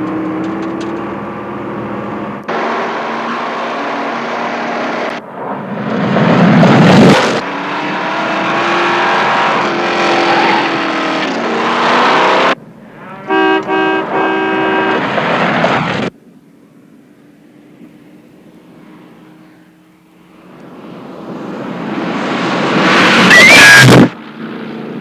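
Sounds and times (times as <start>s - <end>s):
car engine running hard: 0.0s - 25.0s
tyre and road noise: 0.0s - 25.0s
car horn honking: 13.1s - 15.1s.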